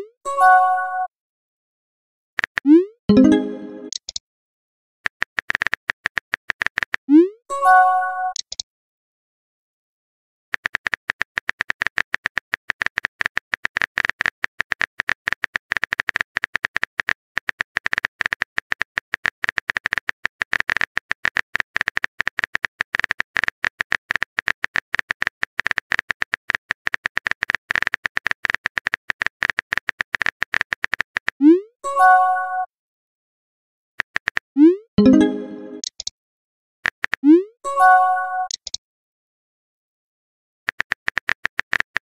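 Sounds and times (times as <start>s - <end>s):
phone keyboard clicks: 5.1s - 7.0s, 8.3s - 8.6s, 10.6s - 31.3s, 35.8s - 36.1s, 38.5s - 38.8s, 40.7s - 42.0s.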